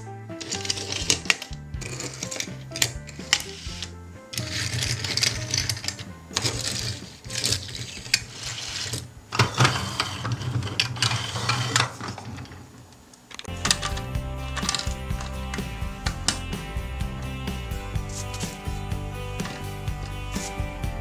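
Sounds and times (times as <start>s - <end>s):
toy cars clicking and rattling: 0.4s - 12.6s.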